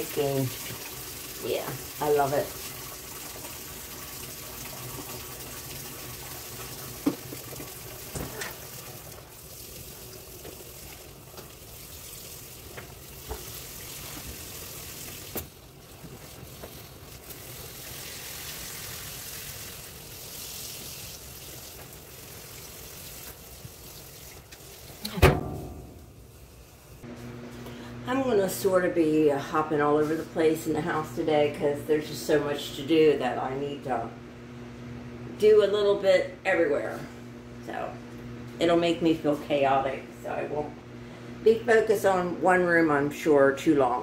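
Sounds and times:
water rushing into washing machine: 0.0s - 26.4s.

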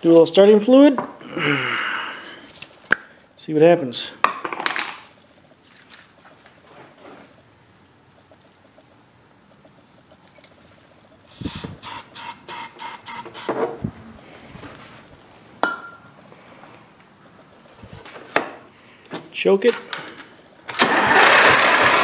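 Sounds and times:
aerosol spray hissing: 11.3s - 13.6s.

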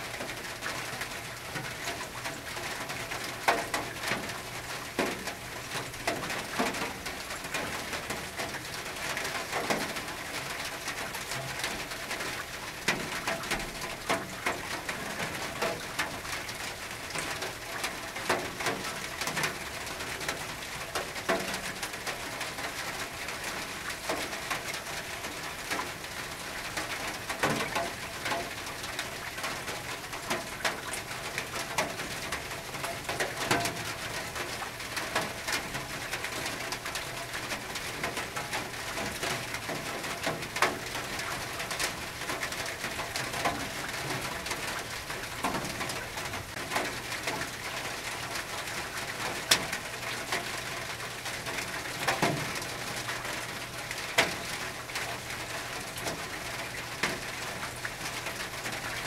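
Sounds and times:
drops ticking on metal roof: 0.1s - 59.0s.

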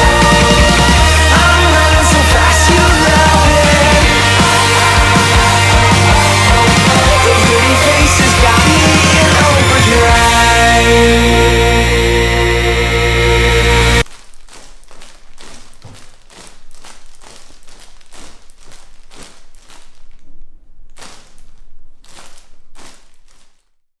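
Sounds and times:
rock music: 0.0s - 14.0s.

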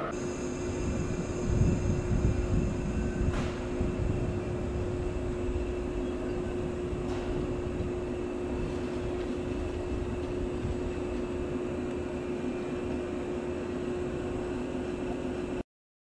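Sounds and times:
electric train humming: 0.0s - 15.6s
low rumble: 0.6s - 12.0s.

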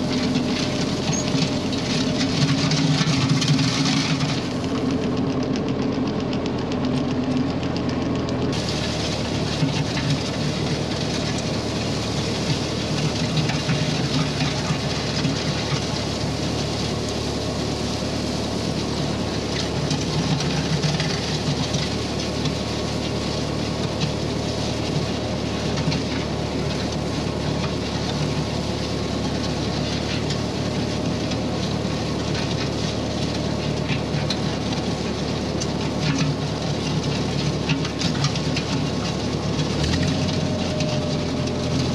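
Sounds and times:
tractor engine running: 0.0s - 41.9s
blade scraping gravel: 8.5s - 41.9s.

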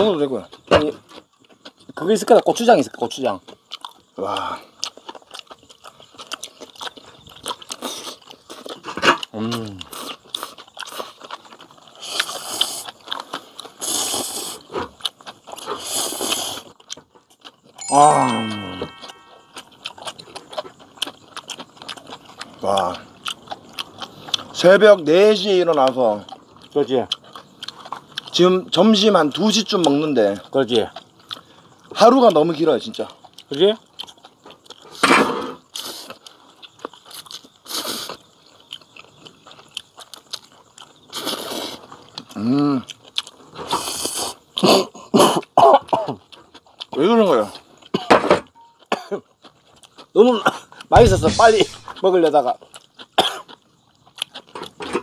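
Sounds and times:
chewing: 0.0s - 55.0s
noodles slurping: 9.8s - 16.9s, 41.1s - 42.0s
person slurping noodles: 13.8s - 14.7s, 15.6s - 16.7s, 41.1s - 41.8s.

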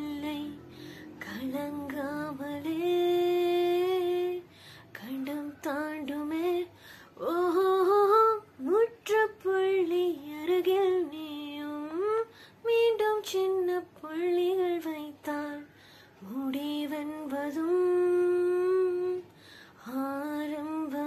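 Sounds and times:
breaths: 0.6s - 1.2s, 4.5s - 4.9s, 6.7s - 7.2s, 12.3s - 12.6s, 15.7s - 16.2s, 19.3s - 19.8s.

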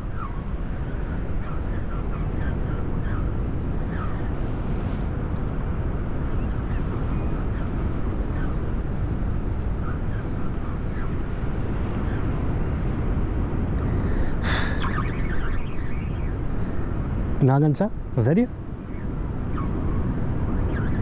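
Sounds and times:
wind rumble on microphone: 0.0s - 21.0s
faint bird chirps: 13.9s - 18.3s, 18.9s - 21.0s.

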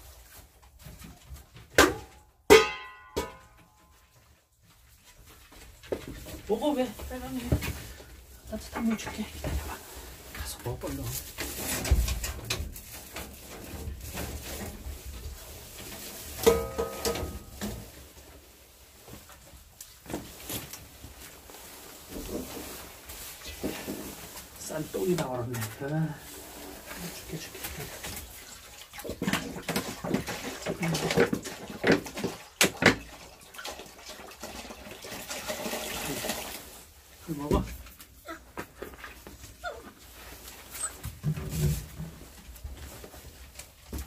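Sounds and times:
water pouring into bowl: 33.2s - 36.7s.

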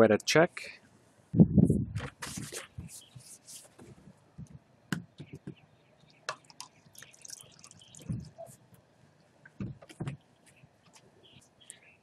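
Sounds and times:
fuel pouring into cup: 6.4s - 8.4s.

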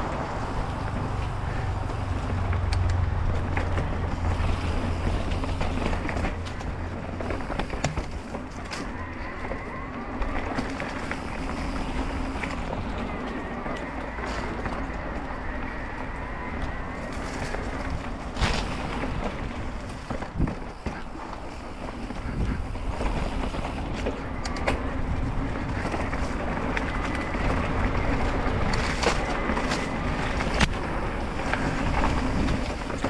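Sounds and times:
bike rattling clicks and knocks: 0.0s - 33.0s
bike tyre noise: 0.0s - 33.0s
wind buffeting microphone: 0.0s - 33.0s.

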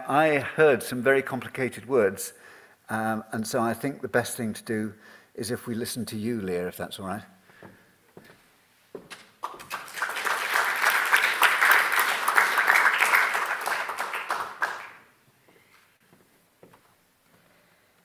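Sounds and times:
audience applauding: 9.4s - 15.1s.

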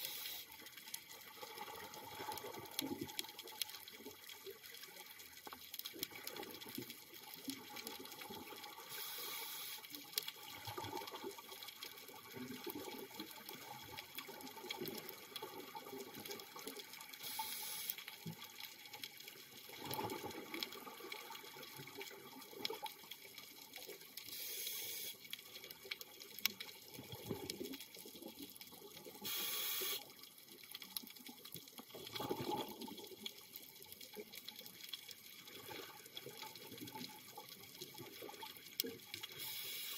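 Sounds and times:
scuba regulator hiss: 0.0s - 0.5s, 8.9s - 9.9s, 17.2s - 18.0s, 24.3s - 25.2s, 29.2s - 30.0s, 39.3s - 39.9s
underwater crackle: 0.0s - 39.9s
exhaled bubbles rumbling: 19.7s - 22.6s, 32.0s - 33.2s.

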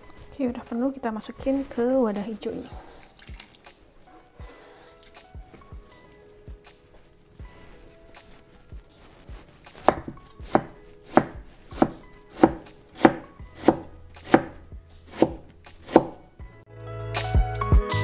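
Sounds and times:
background music: 0.0s - 18.0s
knife chopping on plastic board: 9.8s - 16.2s.

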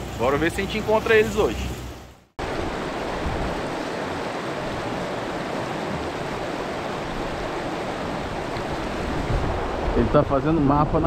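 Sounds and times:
river rapids rushing: 0.1s - 11.0s.

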